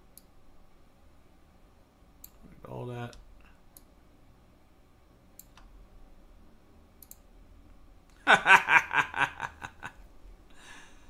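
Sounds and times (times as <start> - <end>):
computer mouse clicks: 0.1 - 0.3, 5.4 - 5.7, 7.0 - 7.3
man laughing: 8.2 - 10.9.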